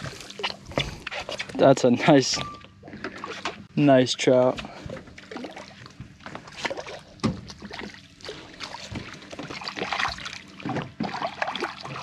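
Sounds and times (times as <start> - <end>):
fish thrashing and splashing water: 4.7 - 12.0.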